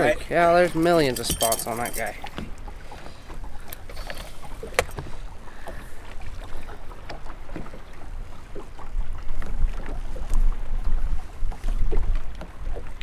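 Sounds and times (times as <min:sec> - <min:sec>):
boat engine rumble: 0:00.0 - 0:13.0.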